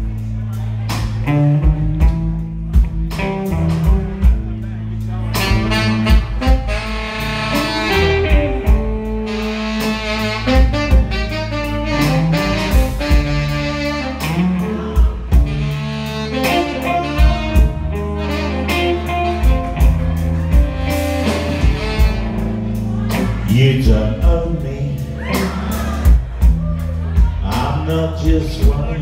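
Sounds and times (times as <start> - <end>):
bass: 0.0 - 29.0
drums: 0.0 - 29.0
electric guitar: 0.8 - 23.8
saxophone: 5.2 - 23.0.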